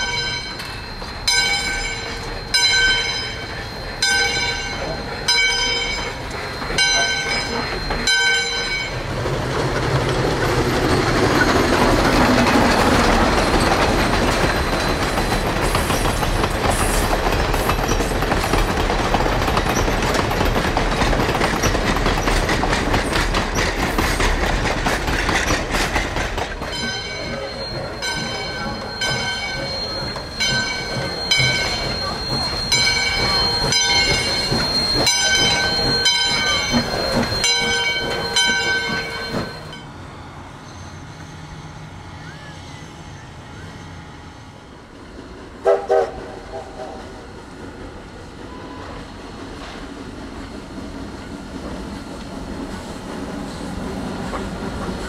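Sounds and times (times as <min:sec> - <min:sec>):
train rumble and wheel clatter: 0:00.0 - 0:55.0
steam locomotive whistle blasts: 0:45.6 - 0:47.2, 0:48.4 - 0:49.0.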